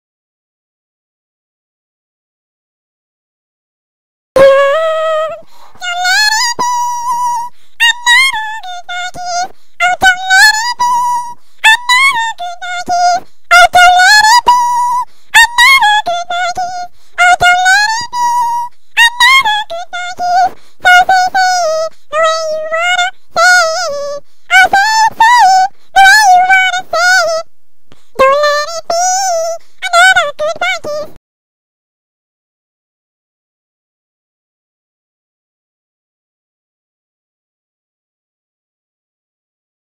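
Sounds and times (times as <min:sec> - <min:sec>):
high squeaky singing voice: 0:04.4 - 0:27.5, 0:28.1 - 0:31.2.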